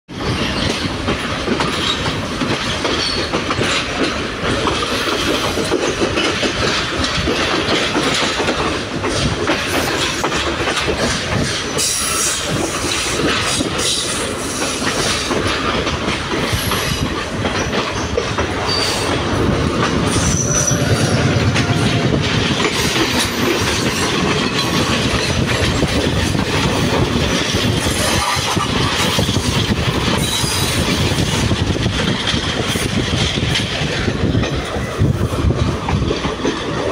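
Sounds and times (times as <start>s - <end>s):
train wheels clattering over rails: 0.1s - 36.9s
high wheel squeals: 20.1s - 21.9s.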